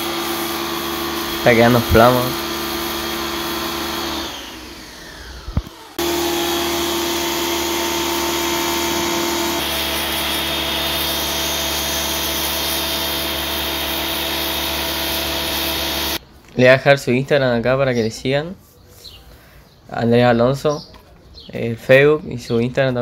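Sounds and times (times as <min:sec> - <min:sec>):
pressure washer motor and pump: 0:00.0 - 0:16.2.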